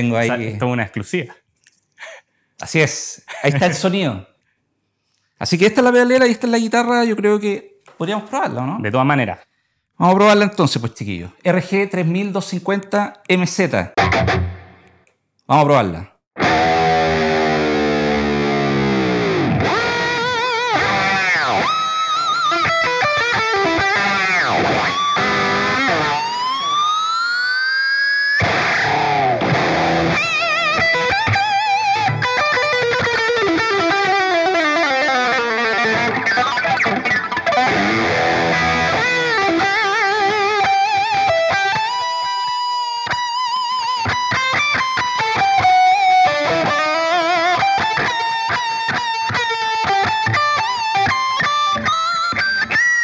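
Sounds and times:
distorted electric guitar: 0:14.0 - 0:15.0, 0:16.4 - 0:53.0.

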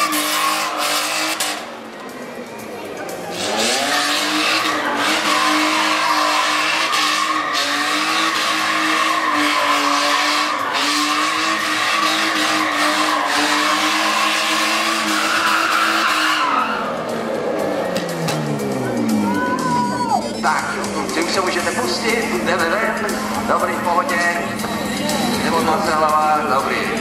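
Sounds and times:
car engine revving high: 0:00.0 - 0:01.8, 0:03.3 - 0:19.4
tyres spinning and skidding: 0:00.0 - 0:27.0.

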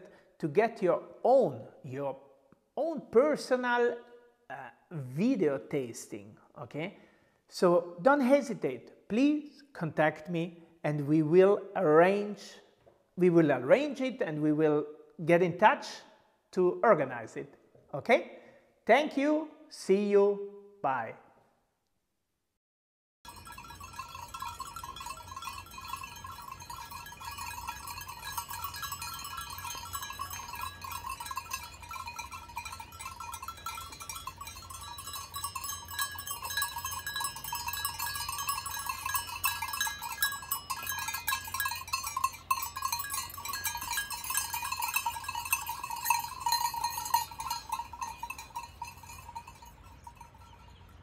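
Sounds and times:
livestock bells clanking: 0:23.3 - 0:51.0.

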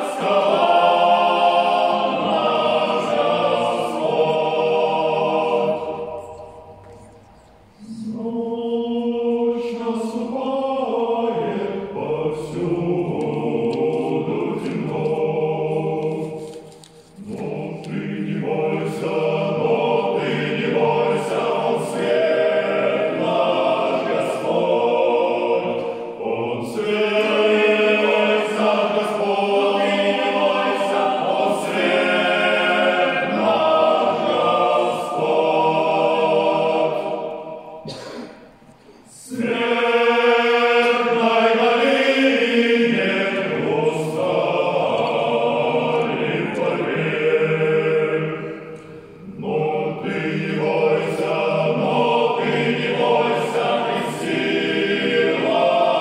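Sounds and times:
male choir singing: 0:00.0 - 0:06.8, 0:07.8 - 0:38.2, 0:39.1 - 0:56.0.

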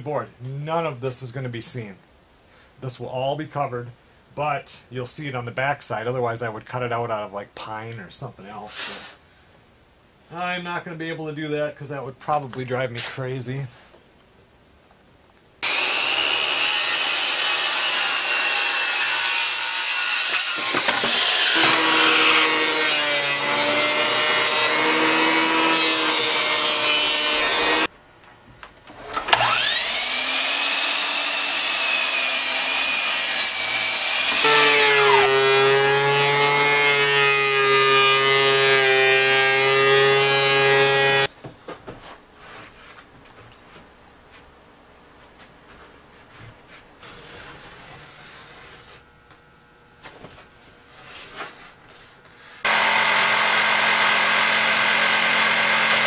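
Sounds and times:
power tool motor whining: 0:15.6 - 0:17.0, 0:20.4 - 0:27.9, 0:29.3 - 0:38.2, 0:52.7 - 0:56.0.

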